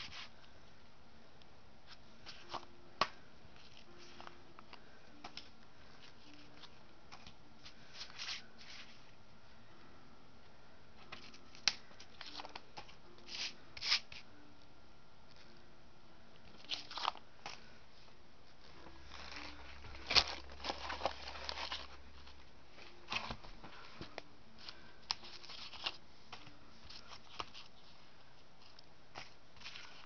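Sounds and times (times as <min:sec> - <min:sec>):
paper and cardboard rustling: 0:03.6 - 0:09.1, 0:18.6 - 0:30.0.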